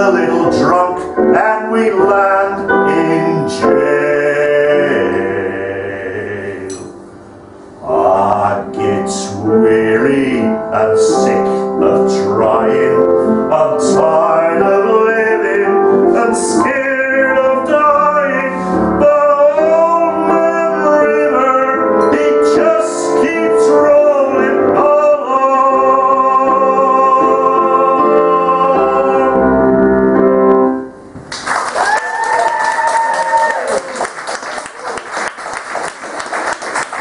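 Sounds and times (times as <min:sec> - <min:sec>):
man singing: 0:00.0 - 0:06.9, 0:07.8 - 0:29.9
piano accompaniment: 0:00.0 - 0:31.5
applause: 0:31.3 - 0:37.0.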